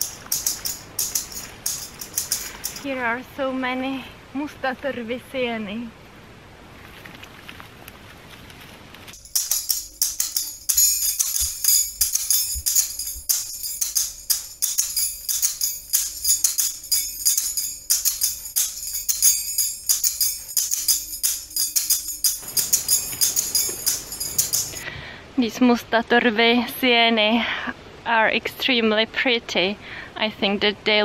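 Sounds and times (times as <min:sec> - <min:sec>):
jingling percussion rhythm: 0:00.0 - 0:02.9, 0:09.2 - 0:24.8.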